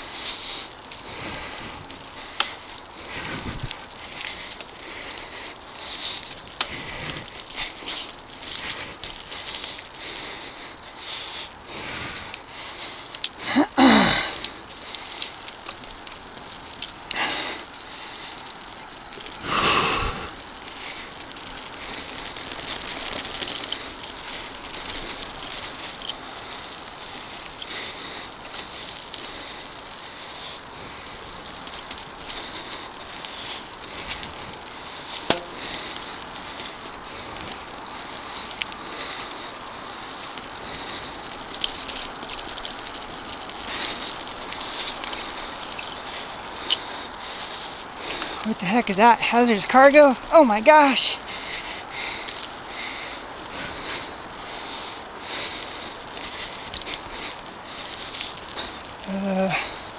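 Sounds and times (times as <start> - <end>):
bike rattling: 0.0 - 59.9
bike tyres rolling on dirt: 0.0 - 59.9
sharp clicks and knocks: 35.3 - 35.6.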